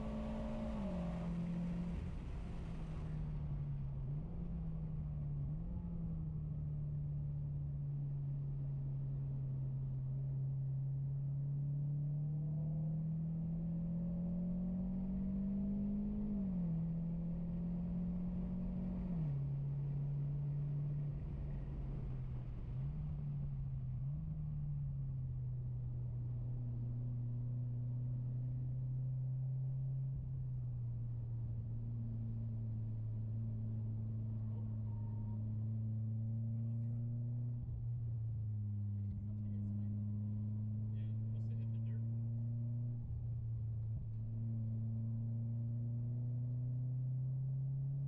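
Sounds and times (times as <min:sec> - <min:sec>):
car engine revving from cabin: 0:00.0 - 0:06.0, 0:10.9 - 0:30.5.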